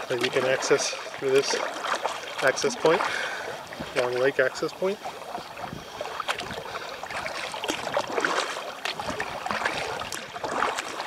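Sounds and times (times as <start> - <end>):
kayak paddle splashing in water: 0.0 - 11.0.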